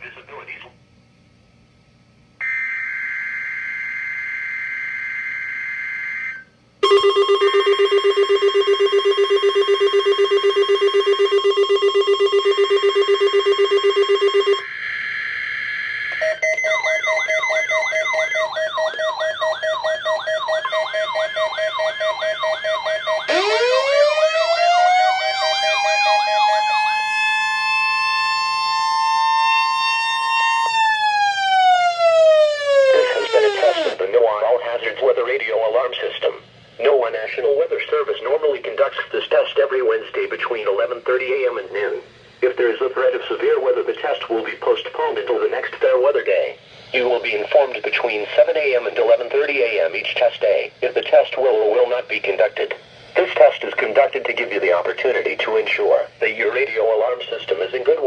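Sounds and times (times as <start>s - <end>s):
buzzy data tone: 2.4s - 23.7s
siren-like tone: 2.4s - 34.0s
warbling alarms: 2.4s - 35.9s
loud rapid beeping: 5.7s - 15.4s, 16.2s - 27.3s, 32.0s - 34.0s.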